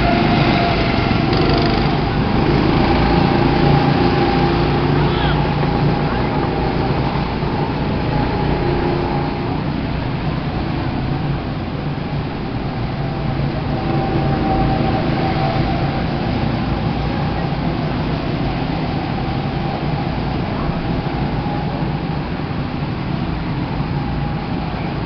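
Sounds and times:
go-kart engines droning: 0.0s - 25.0s.

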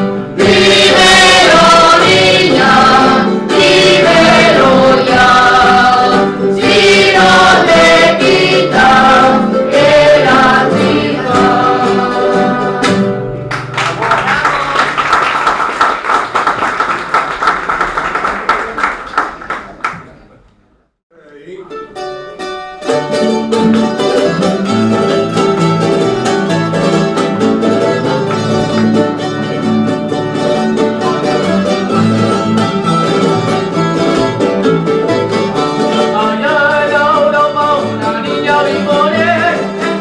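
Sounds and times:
group singing in unison: 0.0s - 13.4s, 36.0s - 40.0s
strummed guitars: 0.0s - 14.5s, 21.4s - 40.0s.

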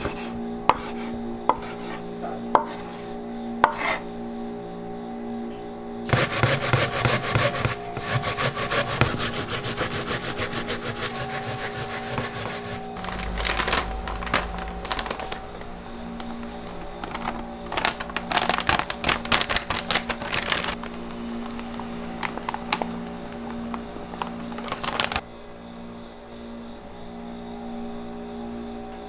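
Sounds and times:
plastic packet crinkling: 13.0s - 25.2s.

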